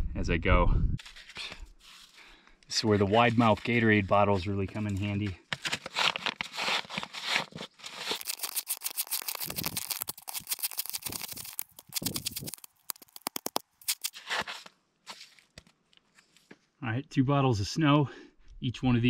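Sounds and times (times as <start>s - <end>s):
hands scraping snow: 2.8s - 5.1s, 5.8s - 12.6s, 13.8s - 15.4s.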